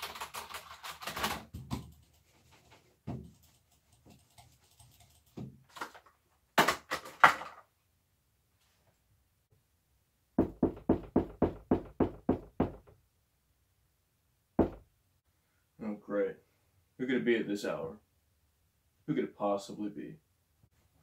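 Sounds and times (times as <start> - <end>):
knocking on wooden door: 10.4 - 12.9, 14.6 - 14.8.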